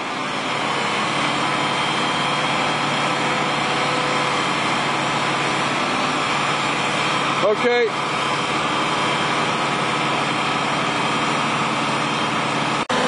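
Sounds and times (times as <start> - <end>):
engines running steadily: 0.0 - 13.0.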